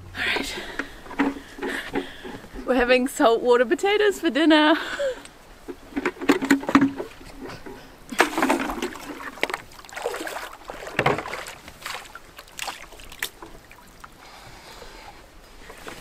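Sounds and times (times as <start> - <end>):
bucket splashing in seawater: 5.9 - 14.2.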